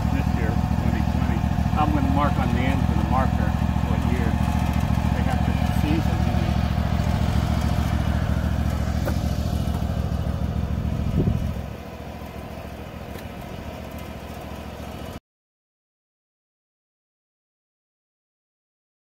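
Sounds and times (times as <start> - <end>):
riding mower engine idling: 0.0 - 15.2.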